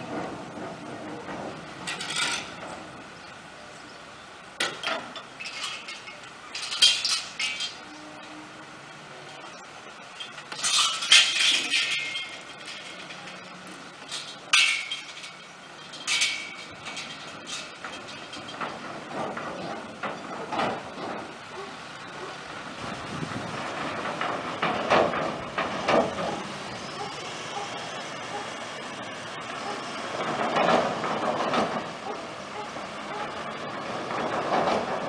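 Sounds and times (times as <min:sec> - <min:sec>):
metallic clanks and rattles on ramp: 0:00.0 - 0:03.3, 0:04.6 - 0:08.4, 0:09.3 - 0:35.0.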